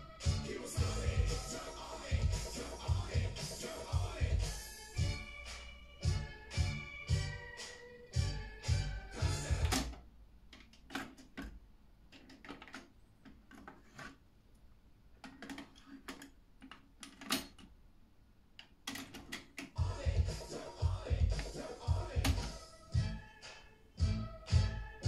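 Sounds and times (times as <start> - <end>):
music playing from tape deck: 0.0 - 9.9, 19.8 - 25.0.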